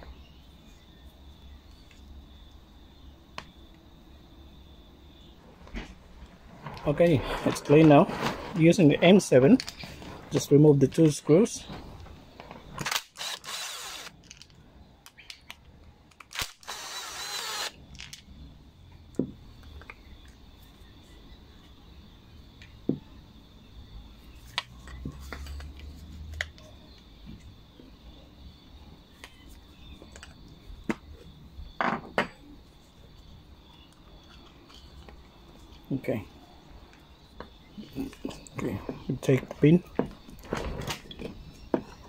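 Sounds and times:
powered screwdriver spinning: 12.8s - 14.2s, 16.3s - 17.8s.

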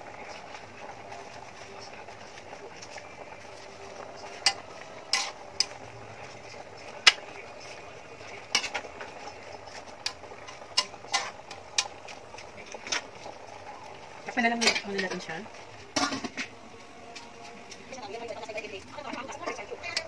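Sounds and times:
metal spatula scraping pan: 4.2s - 7.8s, 8.4s - 8.9s, 9.5s - 12.1s, 14.4s - 16.6s.

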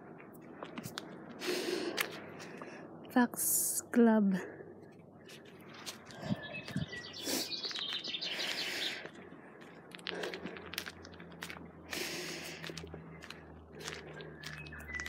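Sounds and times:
small birds chirping: 4.8s - 10.5s, 11.9s - 15.0s
footsteps crunching on forest path: 5.0s - 15.0s.

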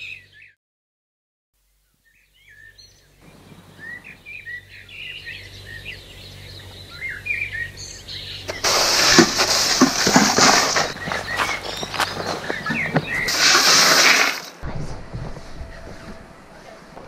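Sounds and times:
birds chirping and whistling: 0.0s - 0.6s, 2.0s - 13.8s
low steady hum: 1.6s - 13.3s, 14.6s - 17.0s.

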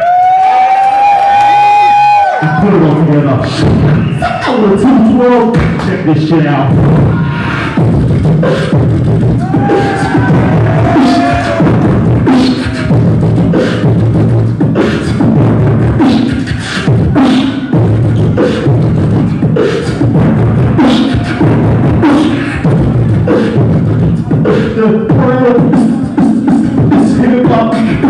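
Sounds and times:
human beatboxing: 0.9s - 28.0s.

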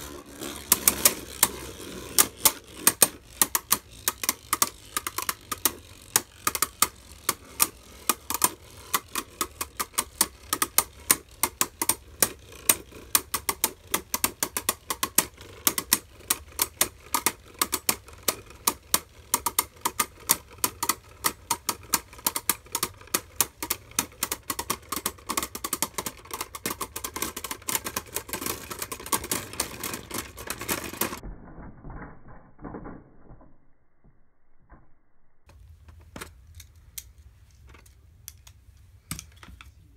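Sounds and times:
spinning tops clicking together: 0.0s - 31.2s
spinning tops rattling: 0.0s - 31.2s.

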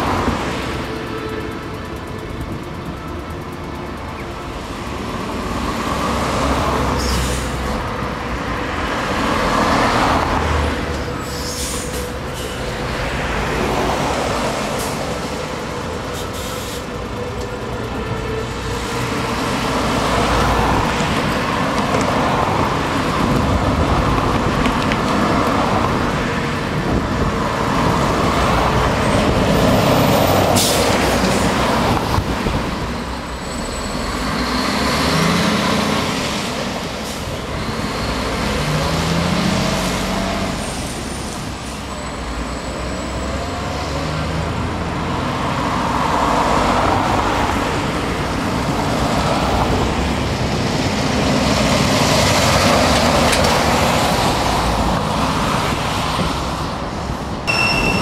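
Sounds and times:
traffic sweeping past: 0.0s - 58.0s
air-brake hisses: 16.2s - 16.9s.

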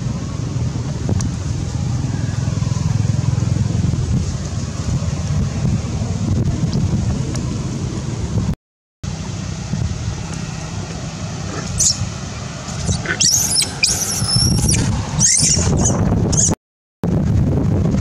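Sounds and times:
wind rumble on microphone: 0.0s - 18.0s
baby monkey squealing: 11.5s - 12.1s, 12.7s - 16.6s.

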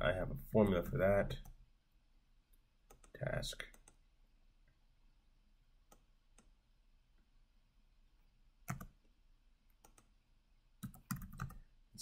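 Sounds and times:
computer mouse clicks: 2.9s - 4.0s, 5.9s - 6.6s, 8.7s - 9.0s, 9.8s - 10.1s, 10.8s - 11.6s.

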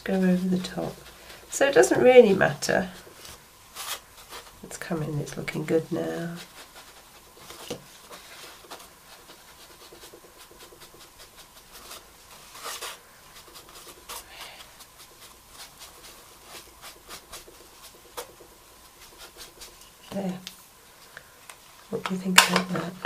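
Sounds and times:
hand rubbing and scratching wood: 0.0s - 21.7s.

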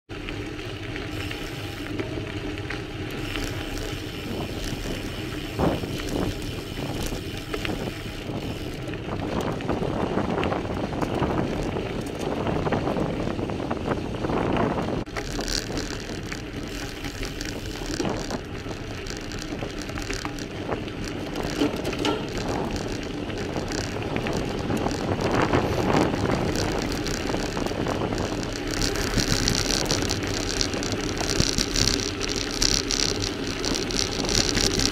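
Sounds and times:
bike tyres crunching over stones: 0.1s - 34.9s
bike frame rattling and clicking: 0.2s - 34.9s
wind on microphone: 3.1s - 34.9s.

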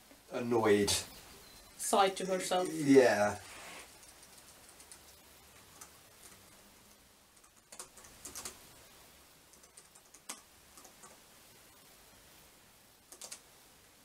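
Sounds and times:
laptop keyboard typing: 3.9s - 6.6s, 7.4s - 8.6s, 9.5s - 11.2s, 13.1s - 13.5s.

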